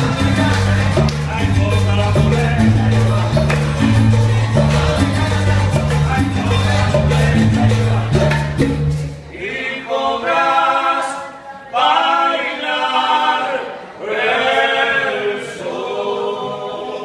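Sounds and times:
guitars and maracas: 0.0s - 9.3s
men singing a cappella: 0.0s - 11.2s, 11.8s - 17.0s.

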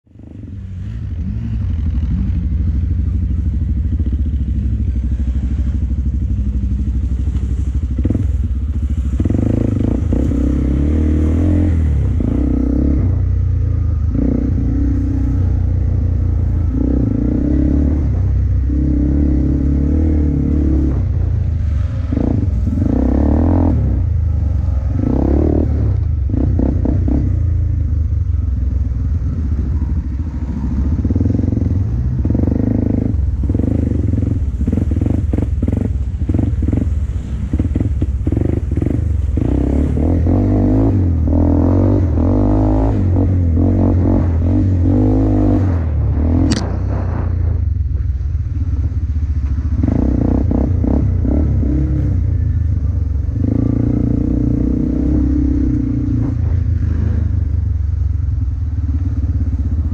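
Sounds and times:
engine rumbling and revving: 0.0s - 59.9s.

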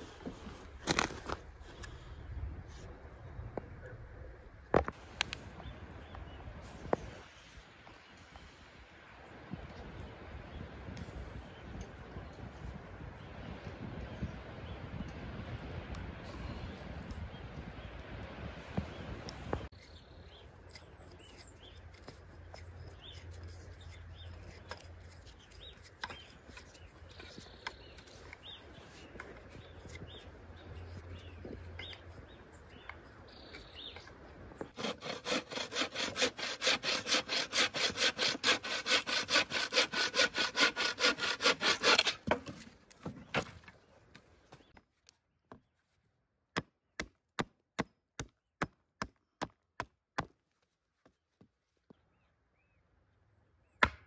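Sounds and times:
hand saw cutting wood: 34.6s - 42.7s.

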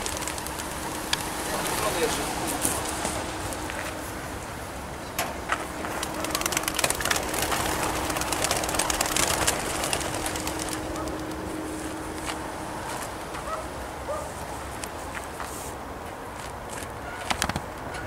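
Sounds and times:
pigeon wingbeats clattering: 0.0s - 3.3s, 5.2s - 11.8s, 16.8s - 18.0s.

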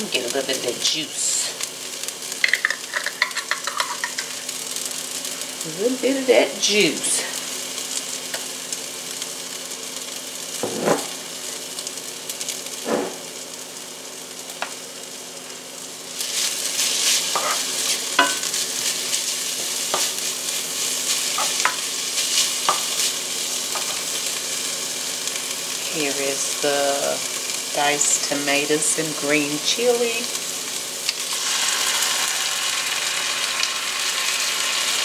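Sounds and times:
vegetables sizzling in a skillet: 0.0s - 35.0s
wooden spoon scraping a pan: 16.2s - 20.2s.

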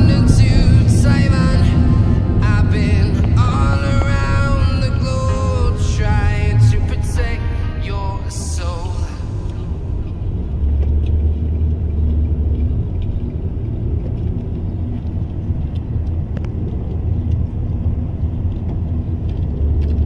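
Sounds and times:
car interior rumble: 0.0s - 20.0s.

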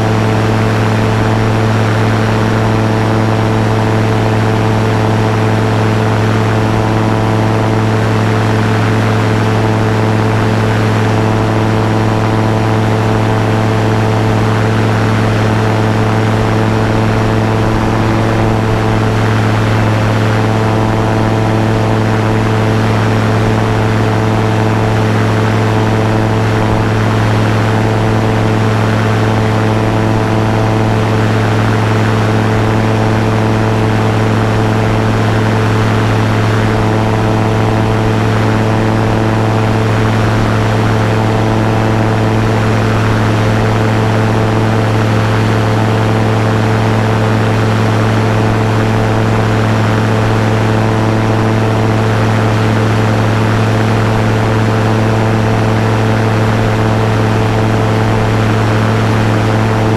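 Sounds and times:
aircraft engine and propeller humming: 0.0s - 59.9s.

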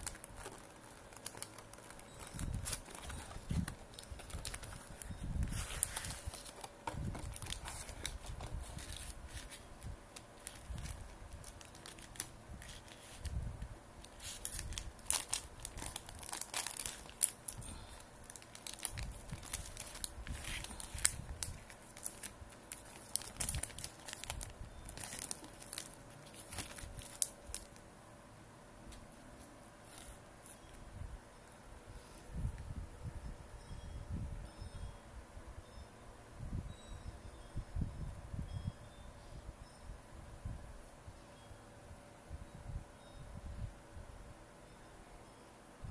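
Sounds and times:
plastic wrapping crinkling: 0.0s - 13.4s, 14.0s - 27.8s.

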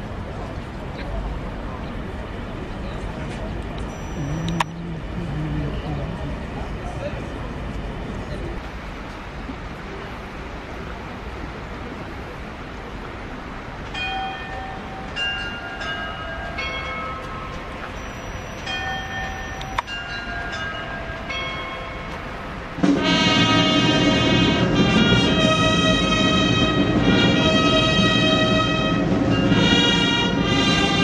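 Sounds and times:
fire truck horn blasts: 22.8s - 31.0s
military brass band playing: 22.8s - 31.0s.

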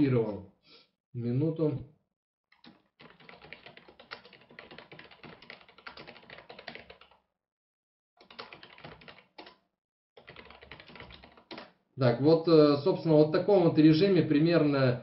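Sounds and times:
computer keyboard typing: 2.5s - 7.2s, 8.2s - 9.6s, 10.2s - 11.8s.

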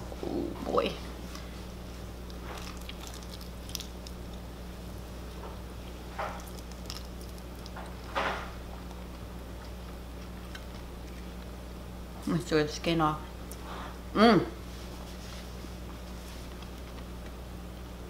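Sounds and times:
steady low hum: 0.0s - 18.0s
soft squishy noises: 0.9s - 4.4s.

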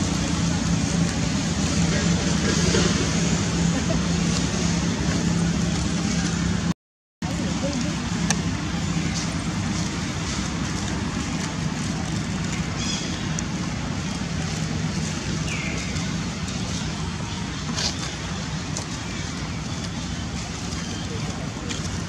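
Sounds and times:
low outdoor rumble: 0.0s - 22.0s
dry leaves crackling: 7.3s - 22.0s.

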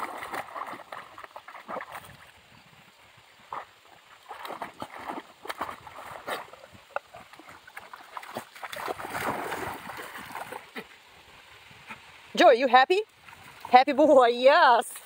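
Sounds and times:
puppy splashing through water: 0.0s - 2.5s, 3.4s - 11.0s.

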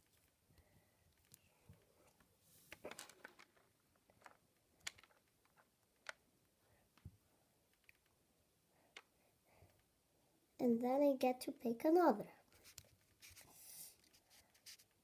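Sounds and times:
small clicks of rubber bands: 2.8s - 6.2s.

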